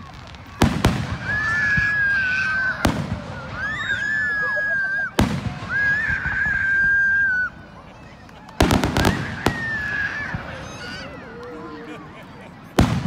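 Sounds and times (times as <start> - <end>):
firework bangs: 0.0 - 4.2, 5.1 - 7.3, 8.5 - 10.9, 12.7 - 13.0
whistling fireworks: 0.0 - 13.0.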